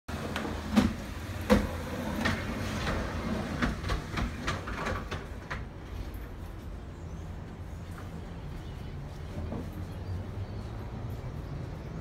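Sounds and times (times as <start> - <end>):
glass panels clacking and knocking: 0.6 - 5.7.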